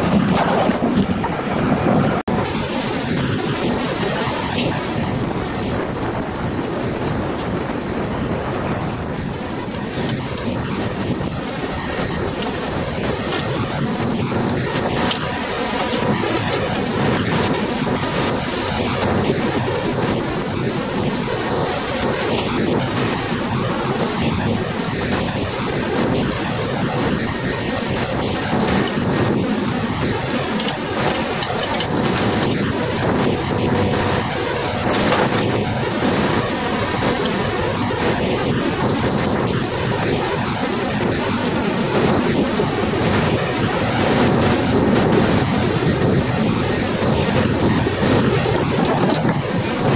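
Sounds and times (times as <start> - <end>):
crane hydraulic drone: 0.0 - 49.9.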